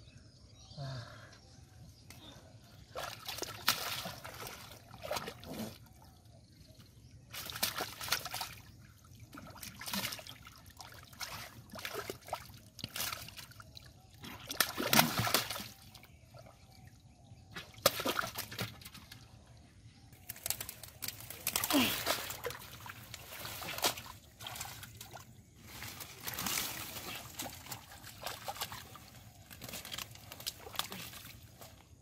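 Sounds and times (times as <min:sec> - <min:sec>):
hands splashing in shallow water: 0:14.3 - 0:15.9.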